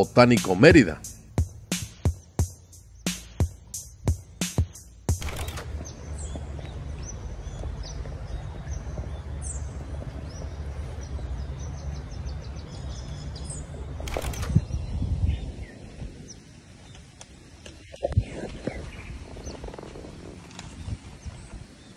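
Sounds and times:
small birds chirping: 0.0 - 21.9
wind rumble on microphone: 5.8 - 21.9.

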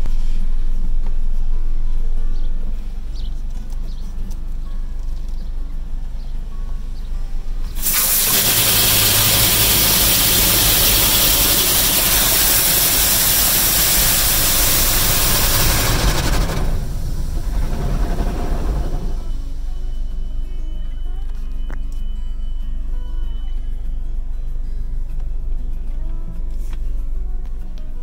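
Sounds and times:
high-pressure water jets hissing: 7.8 - 16.8.

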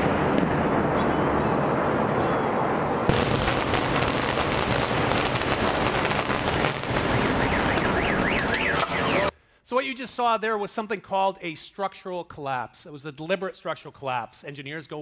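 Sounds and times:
building collapsing crash: 3.1 - 7.4
explosive sharp crack: 3.1 - 8.5.

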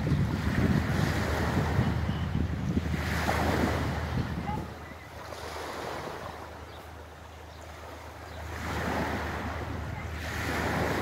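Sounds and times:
wind rumble on microphone: 0.0 - 7.0, 8.2 - 11.0
waves washing on pebble shore: 2.8 - 7.1, 7.9 - 11.0.

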